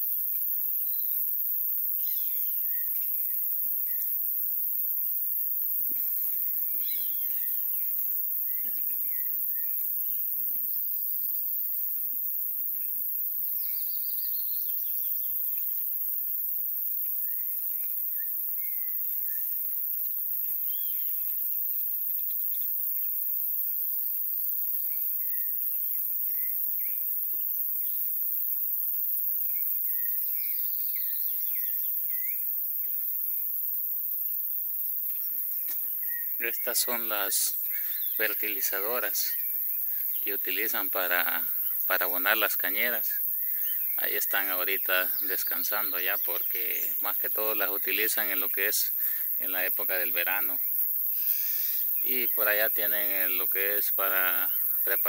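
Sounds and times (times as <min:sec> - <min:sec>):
steady high hiss: 0:00.0 - 0:55.0
birds chirping: 0:06.0 - 0:10.2, 0:13.6 - 0:15.7, 0:20.5 - 0:21.4, 0:29.5 - 0:33.1, 0:35.2 - 0:55.0.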